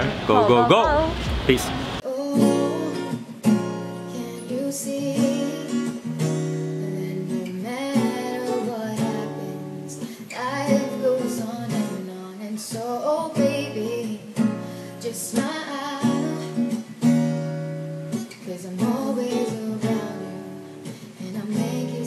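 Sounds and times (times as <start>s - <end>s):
strummed acoustic guitar: 0.0s - 22.0s
person singing: 0.1s - 1.2s, 2.0s - 3.3s, 4.1s - 5.8s, 6.8s - 14.2s, 21.2s - 22.0s.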